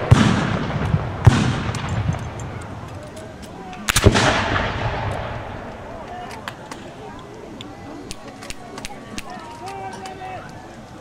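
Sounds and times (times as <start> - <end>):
black-powder gunshots echoing: 0.0 - 2.7, 3.8 - 6.0.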